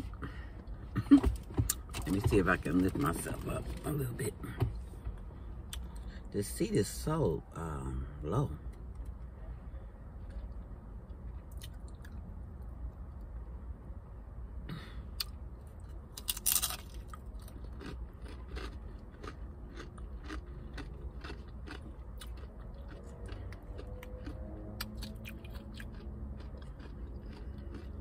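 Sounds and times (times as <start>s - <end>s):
low steady rumble: 0.0s - 28.0s
person crunching chip: 16.1s - 28.0s.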